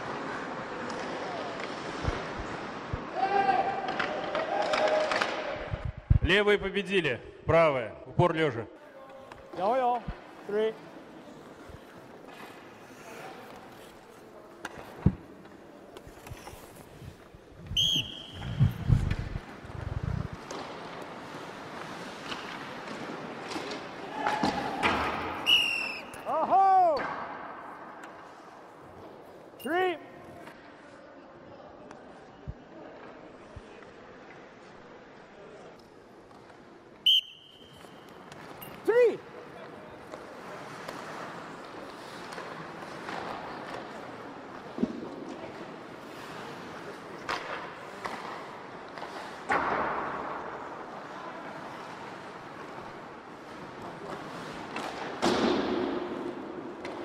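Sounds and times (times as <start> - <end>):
skates scraping on ice: 0.0 - 5.5, 9.2 - 26.6, 37.6 - 57.0
whistle blown: 17.7 - 18.7, 25.4 - 26.3, 37.0 - 38.1.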